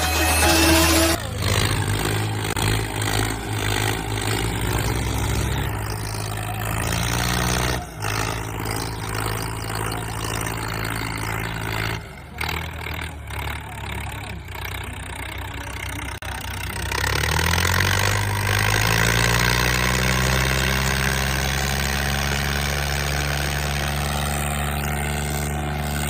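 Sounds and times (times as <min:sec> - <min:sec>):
intro sound effect: 0:00.0 - 0:01.3
tractor engines droning: 0:00.0 - 0:26.0.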